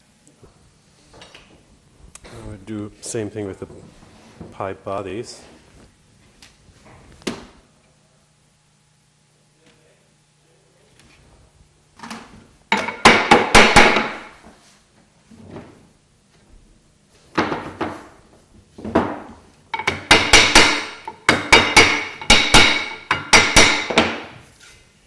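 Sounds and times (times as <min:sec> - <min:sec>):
wooden block knocking metal: 0:12.7 - 0:14.3, 0:19.8 - 0:24.3.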